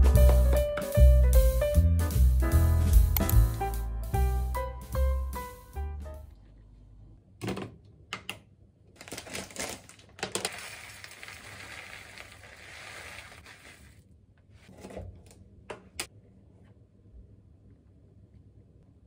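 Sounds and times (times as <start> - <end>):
plastic crinkling: 9.0 - 14.0
oats poured into glass container: 10.5 - 14.0.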